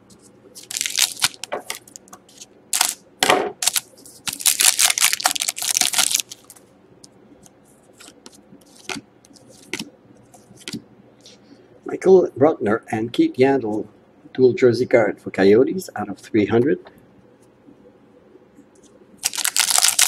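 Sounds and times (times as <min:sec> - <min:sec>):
foil wrapper crinkling and tearing: 0:00.6 - 0:03.0, 0:03.6 - 0:06.6, 0:19.2 - 0:20.0.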